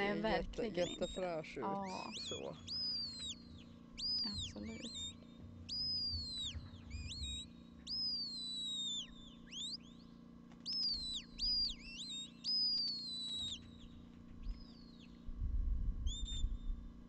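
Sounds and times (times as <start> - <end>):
shepherd's whistle notes: 1.8 - 10.0, 10.6 - 13.9, 16.1 - 16.5
low rumble: 2.2 - 7.5, 15.2 - 16.9.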